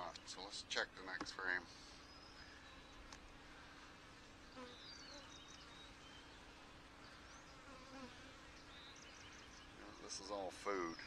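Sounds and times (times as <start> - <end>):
faint chirps: 1.7 - 11.0
honey bees buzzing: 1.7 - 11.0.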